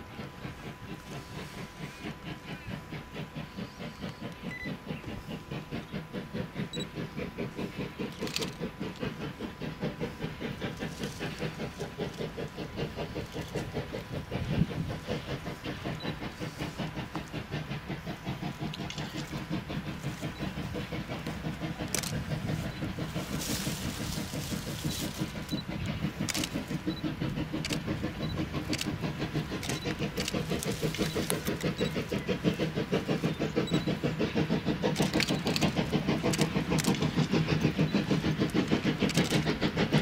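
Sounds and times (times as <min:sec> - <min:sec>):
steam locomotive exhaust chuffing: 0:00.0 - 0:40.0
sharp clicks: 0:18.4 - 0:39.8.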